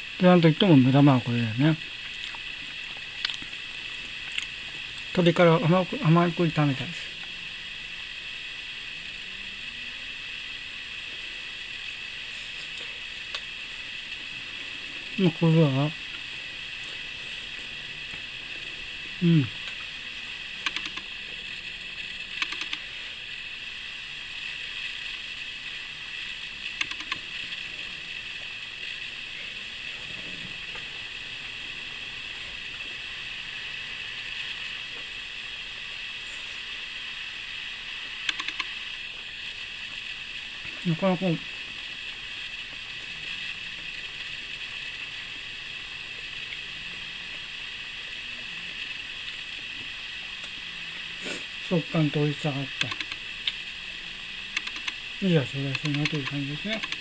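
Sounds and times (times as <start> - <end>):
steady background hiss: 0.0 - 57.0
small eating clicks: 2.0 - 5.4, 15.2 - 21.5, 22.3 - 23.0, 26.7 - 28.6, 38.2 - 38.8, 51.8 - 53.6, 54.5 - 57.0
background hiss: 48.9 - 57.0.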